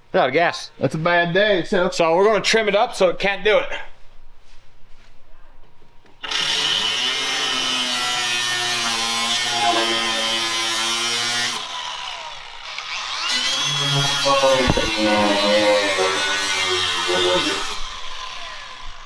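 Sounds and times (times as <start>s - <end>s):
angle grinder cutting metal: 6.2s - 19.0s.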